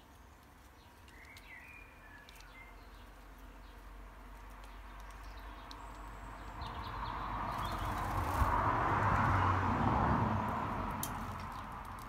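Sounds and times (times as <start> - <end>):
faint bird chirps: 0.8 - 3.8
road vehicle passing: 3.1 - 12.0.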